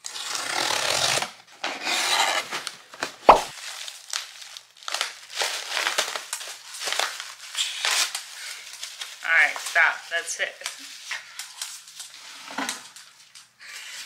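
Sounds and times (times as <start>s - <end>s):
packaging crinkling and tearing: 2.5s - 13.5s
sharp knock: 3.3s - 3.5s.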